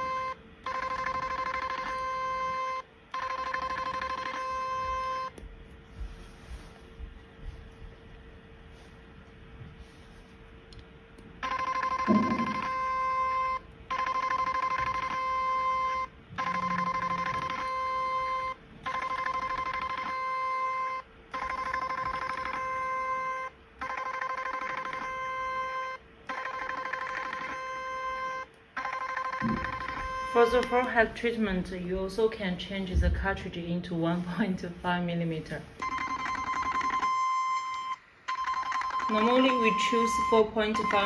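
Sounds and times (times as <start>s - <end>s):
ringing machine beep tone: 0.0s - 5.4s, 11.4s - 31.0s, 35.8s - 41.0s.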